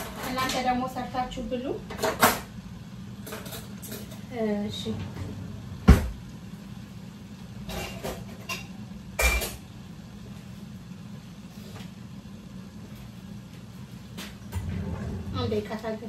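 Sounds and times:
cookware and utensils clattering: 0.0 - 0.8, 1.9 - 2.5, 3.2 - 4.3, 7.6 - 9.6
steady low hum: 1.9 - 16.0.

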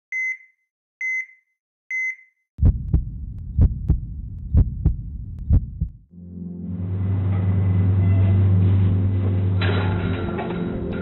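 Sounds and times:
heart monitor beeps: 0.1 - 2.4
heartbeat thumps: 2.6 - 6.1
low rumble: 2.6 - 11.0.

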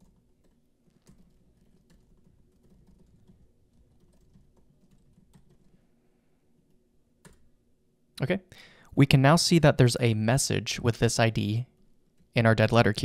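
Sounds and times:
computer keyboard typing: 0.0 - 5.8, 6.6 - 7.5.

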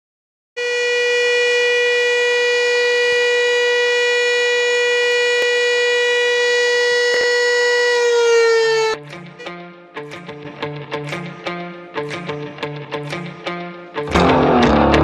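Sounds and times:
fire siren steady tone: 0.6 - 9.0.

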